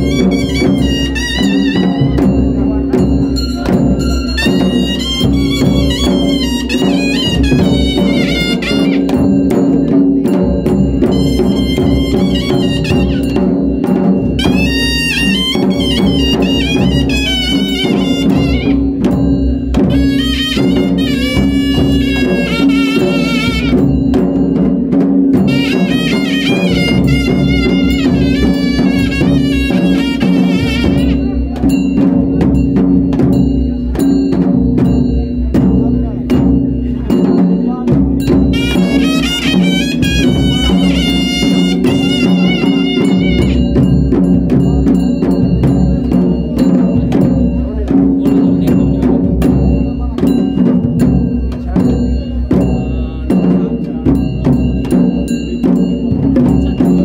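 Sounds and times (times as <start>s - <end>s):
wind instrument melody: 0.0s - 24.6s, 25.2s - 32.5s, 38.2s - 46.2s
drums beating: 0.0s - 57.0s.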